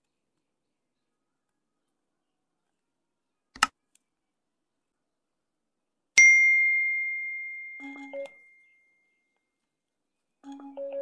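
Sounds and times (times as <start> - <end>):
bell-like ding: 6.2 - 9.2.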